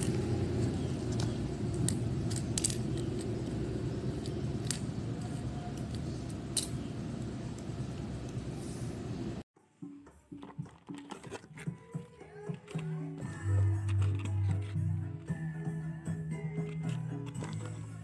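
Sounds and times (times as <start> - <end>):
low background hum: 0.0 - 9.5.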